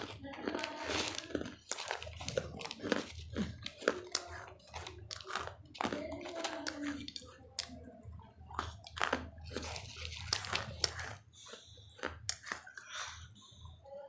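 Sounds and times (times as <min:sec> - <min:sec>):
soft grinding chews: 0:00.0 - 0:13.8.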